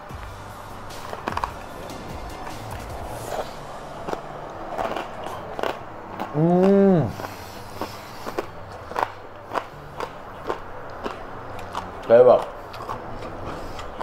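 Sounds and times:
crunching pork skin being chewed: 0.9 - 14.0
man humming: 6.3 - 7.3.

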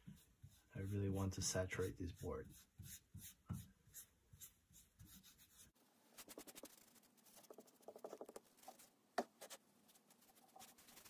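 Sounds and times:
wet patting and rubbing: 6.2 - 11.0.

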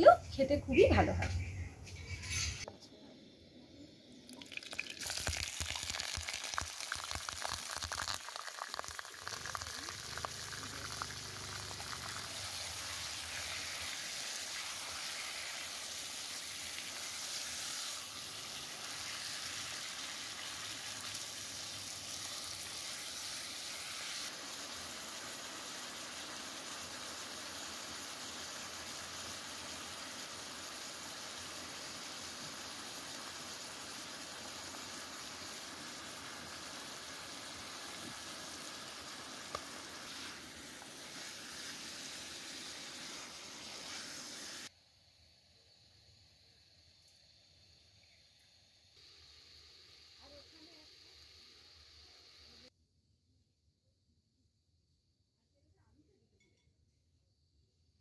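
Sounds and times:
chicken frying in hot oil: 4.1 - 44.7, 49.0 - 52.7.

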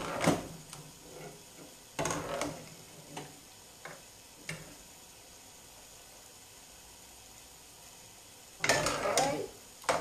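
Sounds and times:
ladle scraping a metal pot: 8.6 - 10.0.

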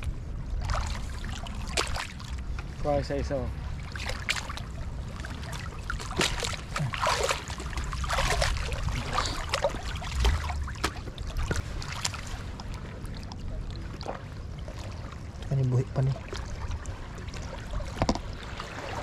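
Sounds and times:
knocks of wading feet: 0.0 - 2.7, 3.8 - 15.5
steady low rumble: 0.0 - 19.0
water splashing and sloshing: 0.0 - 19.0.

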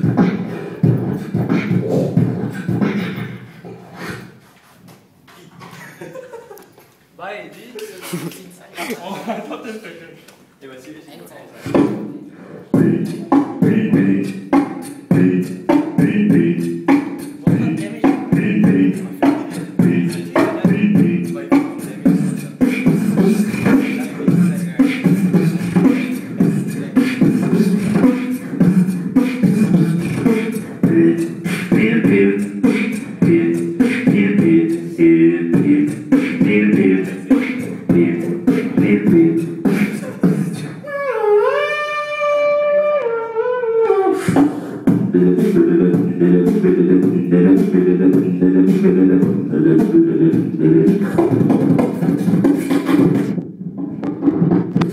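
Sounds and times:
beatboxing into a microphone: 0.0 - 6.2, 7.8 - 8.6, 11.6 - 54.9.

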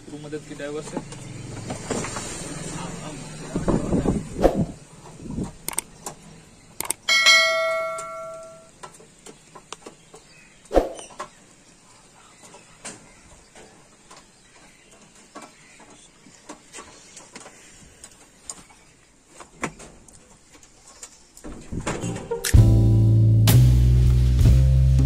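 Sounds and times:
sharp metal knock: 7.1 - 8.7.

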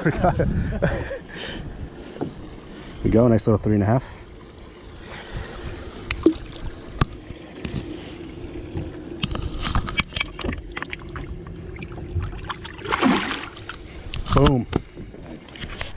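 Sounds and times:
loud fish splash: 12.7 - 13.7.

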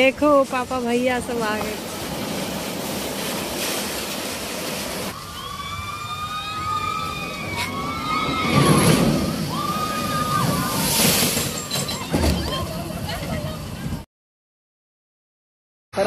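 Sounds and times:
rushing splashing water: 0.0 - 12.3
boat hitting water splash: 1.4 - 5.2, 7.3 - 12.9
riders screaming: 5.1 - 12.9.

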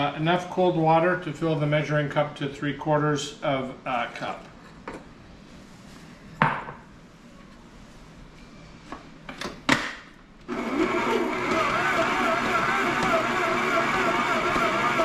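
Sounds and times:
stand mixer motor whining: 10.5 - 15.0.

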